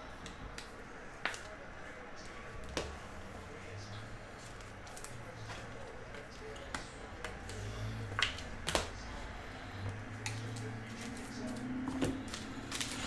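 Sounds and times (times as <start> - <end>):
plastic wrapping rustling: 10.2 - 13.0.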